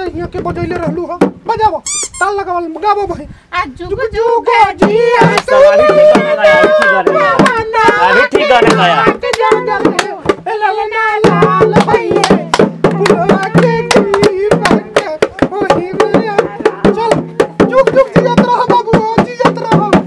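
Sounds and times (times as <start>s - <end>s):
drum beaten in steady rhythm: 0.0s - 1.7s, 4.2s - 20.0s
folk singing: 3.9s - 20.0s
hand claps: 5.2s - 10.4s, 11.2s - 15.5s.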